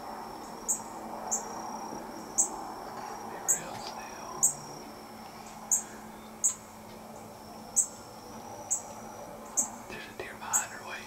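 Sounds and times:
faint steady high hum: 0:00.0 - 0:11.0
high-pitched wildlife chirps: 0:05.7 - 0:06.6.

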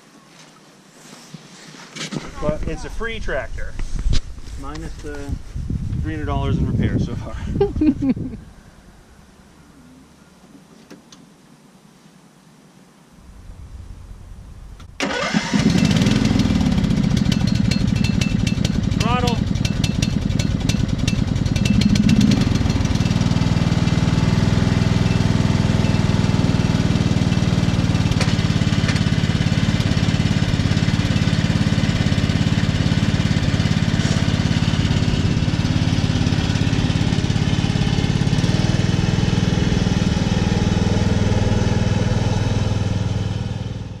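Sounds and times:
riding lawn mower engine: 0:13.2 - 0:44.0.

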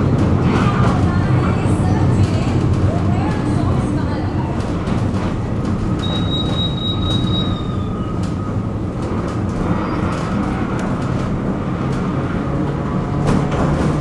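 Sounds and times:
tram wheels and motors rumbling: 0:00.0 - 0:14.0
high wheel squeal: 0:06.0 - 0:08.7.

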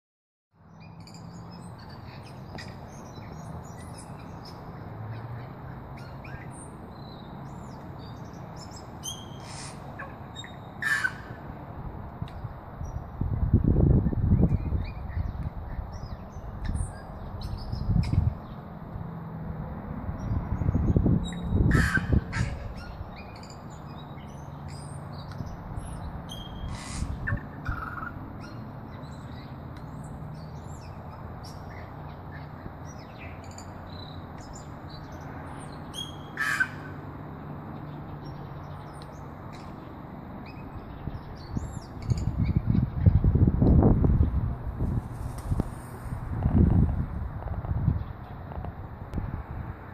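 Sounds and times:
bird singing: 0:00.6 - 0:11.4, 0:14.0 - 0:18.7, 0:20.2 - 0:37.1, 0:37.7 - 0:43.9.

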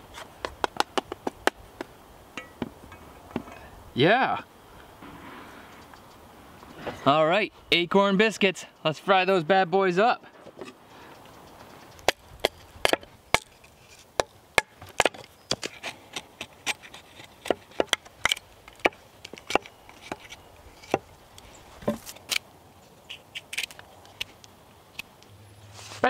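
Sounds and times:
hatchet chopping wood: 0:00.4 - 0:02.7, 0:12.0 - 0:13.6, 0:14.2 - 0:21.1.

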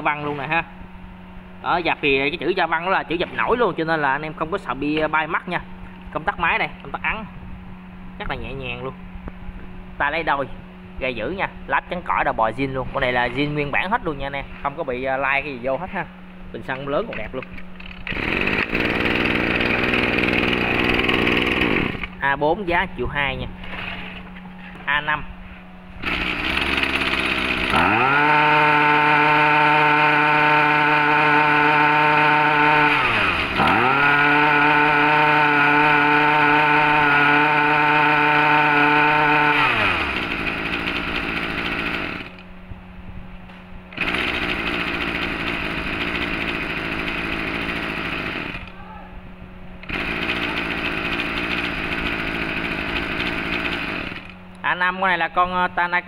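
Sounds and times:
brush cutter engine revving: 0:17.2 - 0:22.2, 0:26.0 - 0:42.5, 0:43.9 - 0:48.8, 0:49.8 - 0:54.4.

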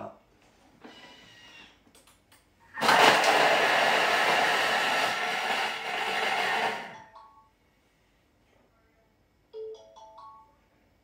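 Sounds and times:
food processor blades chopping: 0:02.8 - 0:07.0.

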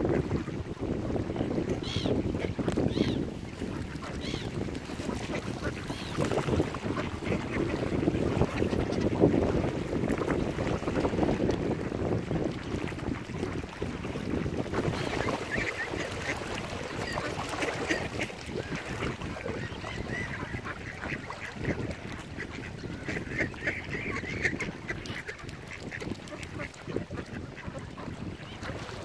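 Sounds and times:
ducks calling: 0:14.9 - 0:28.7.

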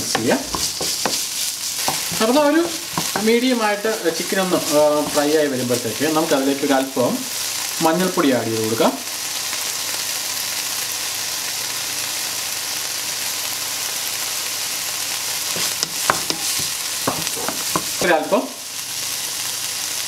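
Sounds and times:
wooden spatula knocking pan: 0:00.0 - 0:03.6, 0:15.6 - 0:18.2
food sizzling in oil: 0:00.0 - 0:20.0.

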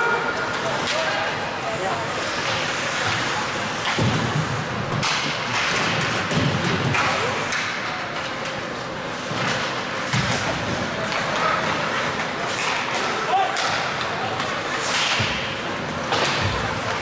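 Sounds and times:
hiss of play on ice: 0:01.7 - 0:04.6.

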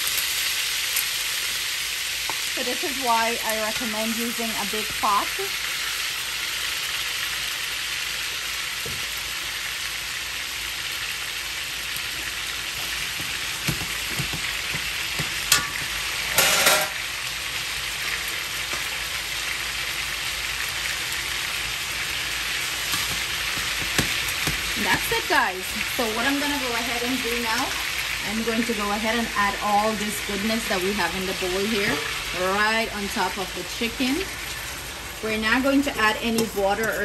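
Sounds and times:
chicken sizzling in hot oil: 0:00.0 - 0:37.0
metal tongs knocking on pan: 0:13.2 - 0:17.0.

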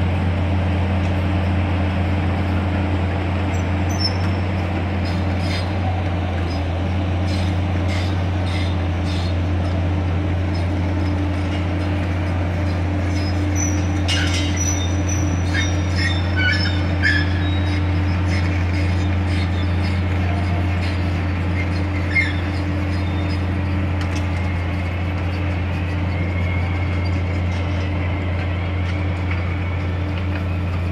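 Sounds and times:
excavator diesel engine running: 0:00.0 - 0:30.9
metal squeaks and clinks: 0:13.1 - 0:18.5.

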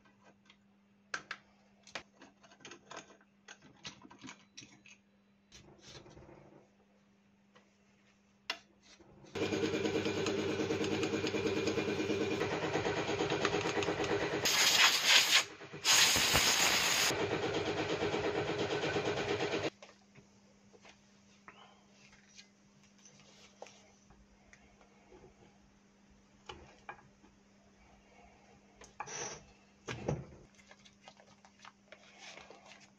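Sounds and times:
clicks and handling sounds: 0:00.0 - 0:06.1, 0:30.4 - 0:32.9
loud hissing bursts: 0:14.4 - 0:17.1.

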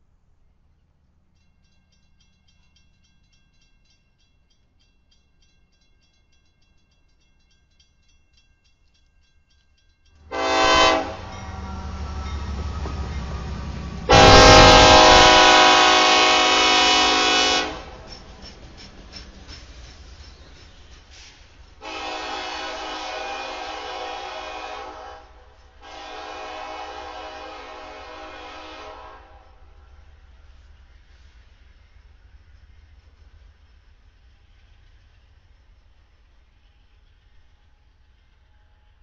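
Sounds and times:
locomotive and wheels rumbling: 0:10.0 - 0:38.7
locomotive horn blasts: 0:10.3 - 0:18.1, 0:21.8 - 0:29.7.

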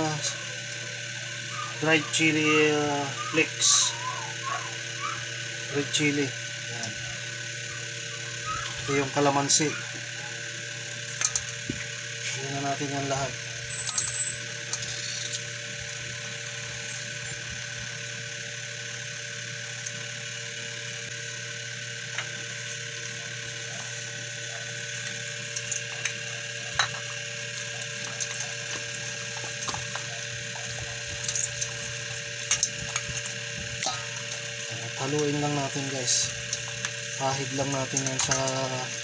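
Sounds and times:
mechanical hum: 0:00.0 - 0:39.0.

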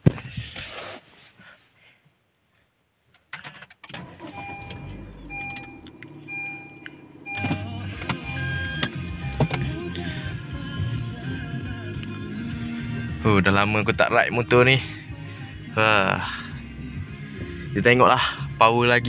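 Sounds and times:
car engine starting and running: 0:03.4 - 0:19.0
dashboard warning chime beeping: 0:04.0 - 0:10.6
short electronic tone: 0:04.2 - 0:09.8.

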